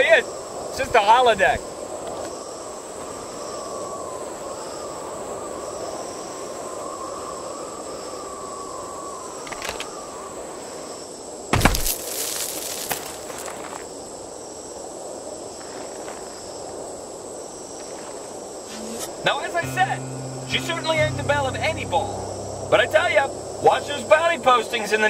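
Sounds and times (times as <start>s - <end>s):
wavering high insect-like drone: 18.8s - 25.0s.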